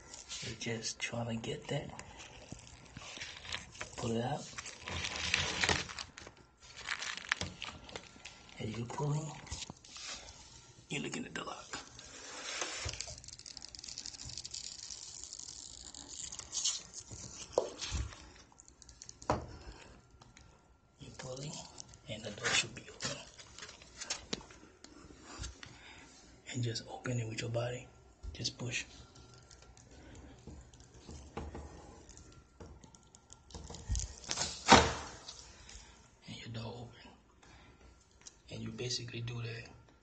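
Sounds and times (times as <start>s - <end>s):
tape rustling and scraping: 0.0s - 10.8s, 11.6s - 20.4s, 21.0s - 25.8s, 28.9s - 36.0s.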